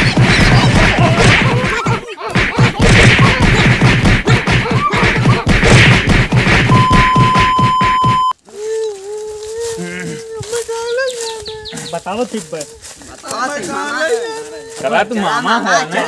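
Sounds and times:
stick whacks and blows: 0.0s - 8.3s
high electronic beep: 6.7s - 8.3s.

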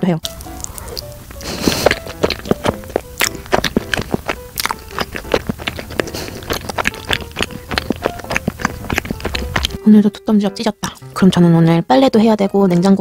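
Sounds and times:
faint background music: 0.0s - 13.0s
wet chewing mouth sounds: 0.2s - 9.8s.

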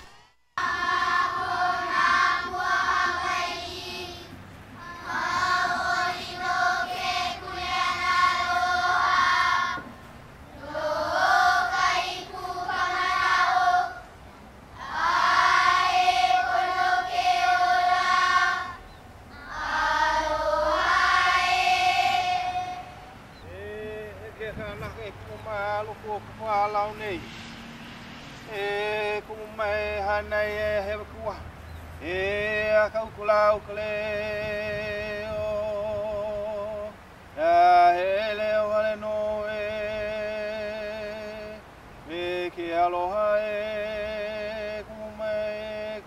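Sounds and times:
group chanting in unison: 0.0s - 4.2s, 4.8s - 9.8s, 10.6s - 14.0s, 14.8s - 18.8s, 19.4s - 23.2s.

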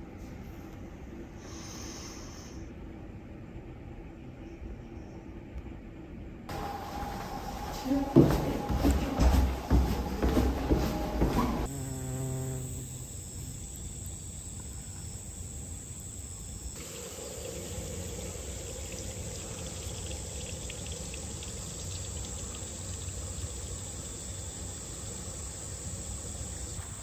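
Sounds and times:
insects chirring: 6.5s - 27.0s.

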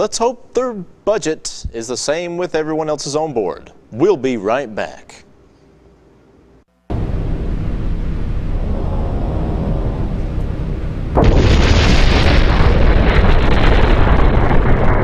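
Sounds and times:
steady rumble: 6.8s - 15.0s
explosion blast: 6.9s - 15.0s.

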